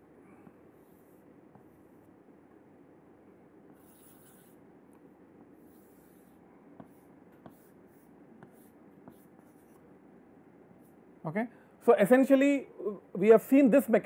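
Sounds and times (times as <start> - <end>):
chalk scraping on chalkboard: 3.7 - 4.6
chalk tapping on board: 6.2 - 9.8.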